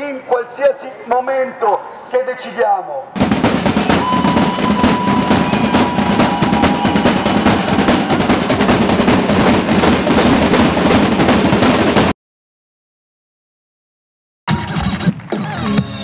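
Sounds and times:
marching drums playing: 3.2s - 12.2s.

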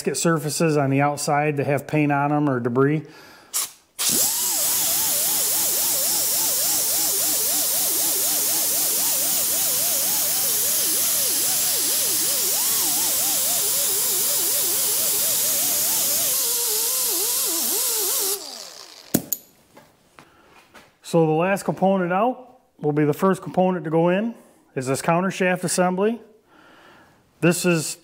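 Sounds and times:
air grinder hissing and whining: 3.6s - 19.4s.

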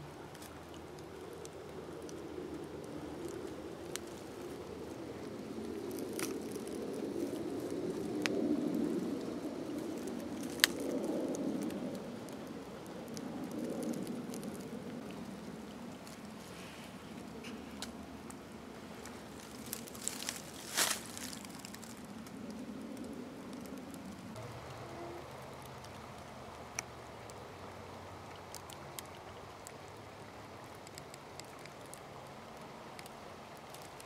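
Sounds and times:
footsteps crunching through dry leaves: 19.1s - 22.0s.

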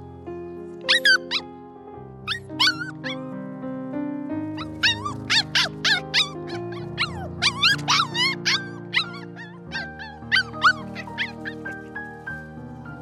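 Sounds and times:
background music: 0.0s - 13.0s
puppy yipping and whimpering: 0.9s - 1.5s, 2.3s - 3.2s, 4.6s - 12.0s.

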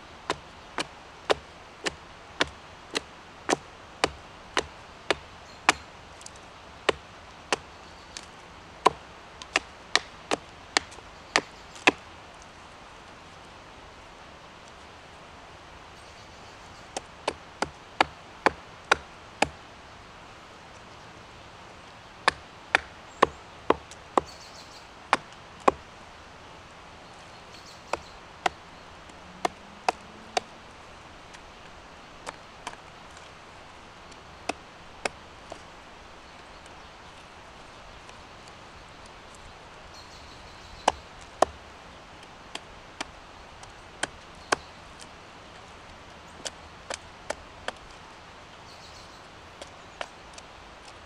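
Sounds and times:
hatchet chopping wood: 0.3s - 12.0s, 16.9s - 19.6s, 22.2s - 24.5s, 25.1s - 25.9s, 27.8s - 30.5s, 32.2s - 33.3s, 34.1s - 35.7s, 40.8s - 41.6s, 42.5s - 44.7s.

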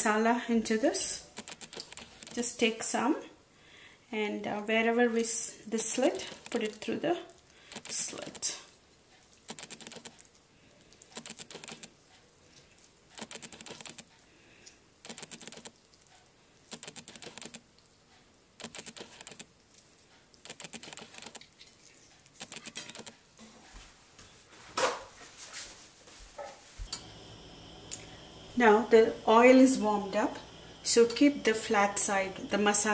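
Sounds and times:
sticky crackling and clicking: 1.3s - 2.4s, 9.4s - 10.3s, 10.9s - 12.0s, 13.1s - 14.2s, 15.0s - 16.0s, 16.7s - 17.8s, 18.6s - 19.5s, 20.3s - 23.2s.

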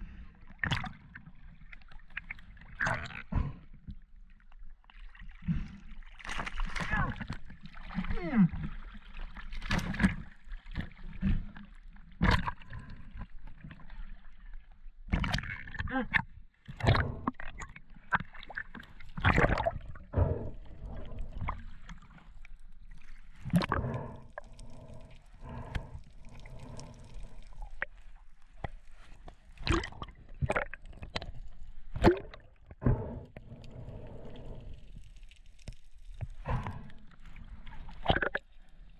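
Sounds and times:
water splashing and sloshing: 0.0s - 38.9s
underwater gurgling and bubbling: 16.7s - 35.5s, 36.2s - 38.9s.

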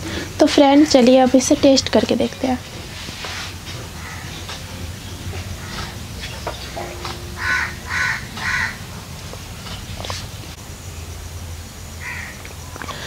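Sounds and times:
low steady hum: 0.0s - 13.0s
crow cawing: 4.0s - 4.4s, 5.5s - 6.0s, 7.3s - 8.9s, 12.0s - 12.4s.

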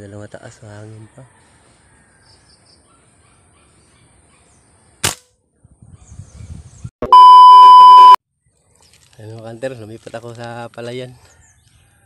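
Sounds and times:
sharp crack: 5.0s - 5.3s
test-tone beep: 7.0s - 8.2s.

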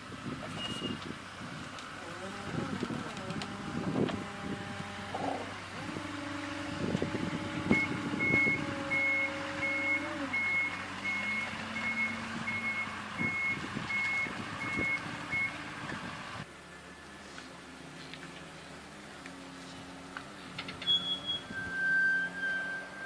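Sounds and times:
motor whine: 2.0s - 16.5s
backup alarm beeping: 7.5s - 15.6s.

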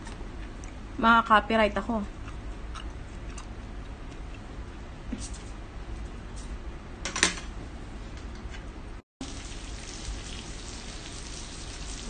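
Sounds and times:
meat sizzling on electric grill: 9.2s - 12.0s.

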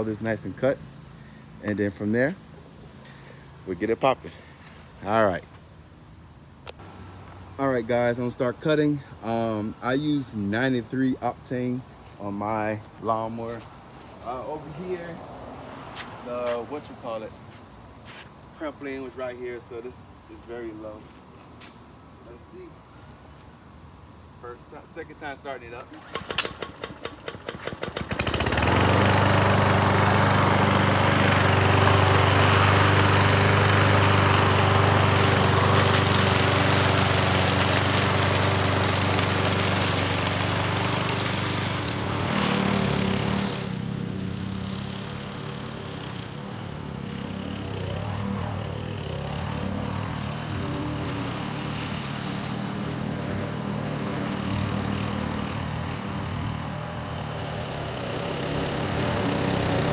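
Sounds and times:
lawn mower engine running: 6.6s - 15.1s, 25.6s - 59.9s
lawn mower engine cranking: 25.7s - 59.9s.

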